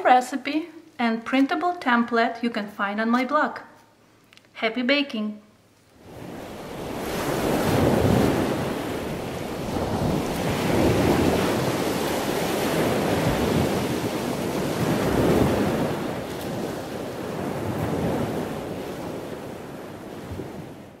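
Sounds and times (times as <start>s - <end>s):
ocean waves washing ashore: 6.0s - 21.0s.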